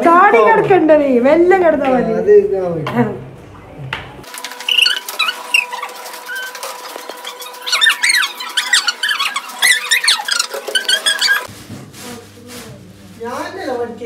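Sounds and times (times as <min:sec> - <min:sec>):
high sliding squeaks and chirps: 0:04.5 - 0:11.5.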